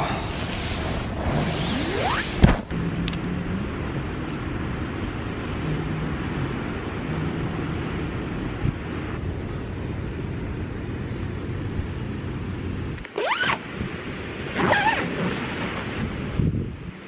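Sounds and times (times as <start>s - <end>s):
sea surf: 0.0s - 2.8s
wind: 0.0s - 17.0s
tent door zipper pulled: 0.3s - 2.7s, 13.1s - 13.6s, 14.5s - 16.0s.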